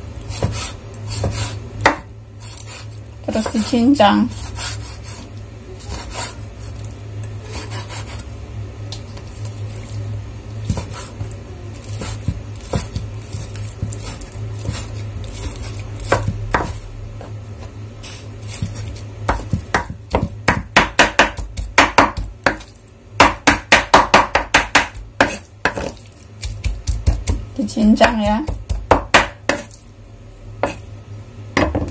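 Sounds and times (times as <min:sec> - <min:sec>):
knife chopping on wooden board: 0:00.3 - 0:02.1, 0:12.0 - 0:17.3, 0:18.6 - 0:29.8, 0:30.6 - 0:30.8.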